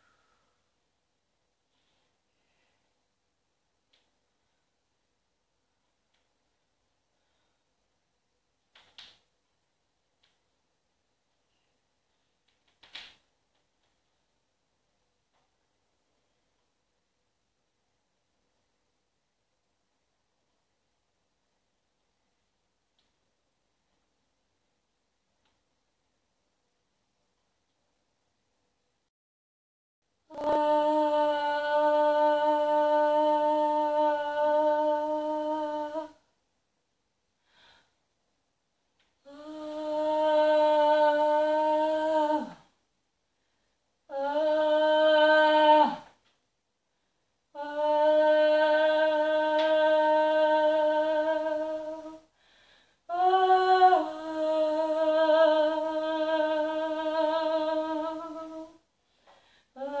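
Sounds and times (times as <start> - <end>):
woman singing long tones: 30.2 - 36.3, 39.2 - 42.8, 44.1 - 46.2, 47.5 - 52.4, 53.1 - 58.9, 59.7 - 60.0.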